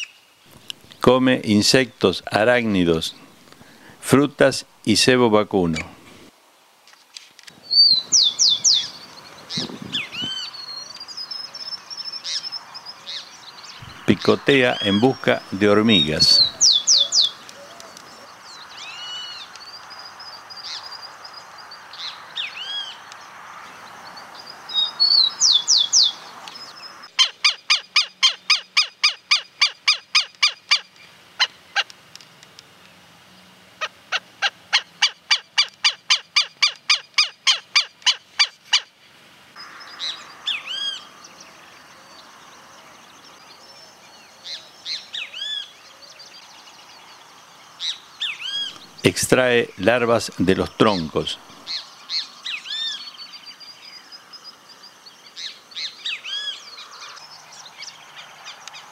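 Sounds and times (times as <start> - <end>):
woodpecker calling rapidly: 7.6 - 21.1, 24.7 - 32.0, 33.8 - 39.0, 39.9 - 41.1, 44.4 - 45.8, 47.8 - 53.3, 55.4 - 58.9
bird chirps and whistles: 7.7 - 9.0, 16.2 - 17.4.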